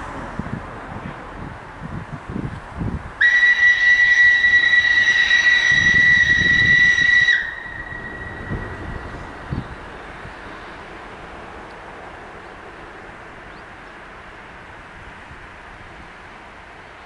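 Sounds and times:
steam locomotive whistle: 0:03.2 - 0:09.3.

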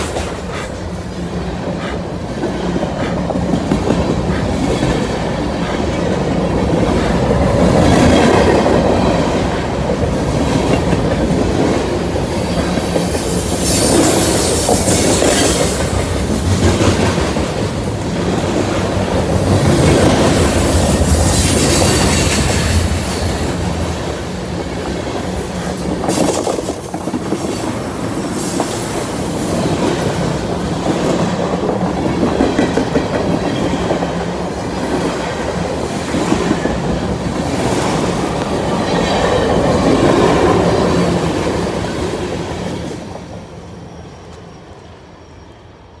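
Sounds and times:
freight train rolling past: 0:00.0 - 0:46.0
high wheel squeal: 0:24.0 - 0:31.7.

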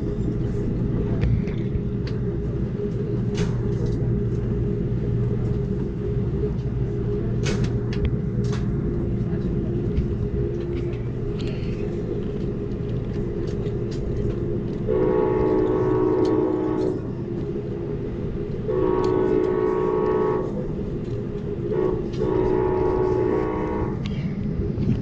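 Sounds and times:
train rumbling on rails: 0:00.0 - 0:25.0
train horn blasts: 0:14.9 - 0:17.1, 0:18.6 - 0:20.6, 0:21.7 - 0:24.1.

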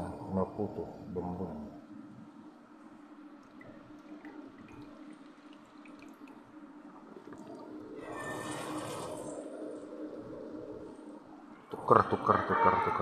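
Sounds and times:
low hum: 0:00.0 - 0:12.5
water trickling into bucket: 0:03.6 - 0:06.5.

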